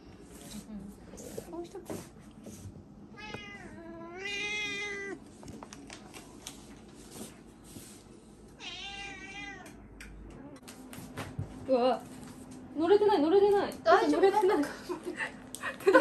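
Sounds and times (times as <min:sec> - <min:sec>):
cat meowing: 0:03.2 - 0:05.2, 0:08.6 - 0:09.8.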